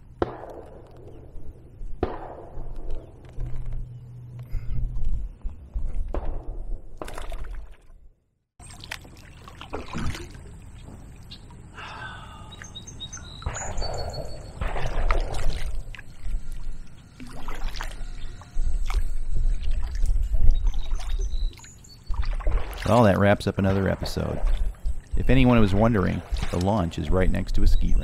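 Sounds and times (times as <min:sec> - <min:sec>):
distant shotgun fire: 0:00.2 - 0:03.2, 0:13.4 - 0:15.3
kayak paddle splashing: 0:08.6 - 0:11.9, 0:15.1 - 0:27.4
songbirds chirping: 0:08.6 - 0:28.0
wind on microphone: 0:14.9 - 0:21.4.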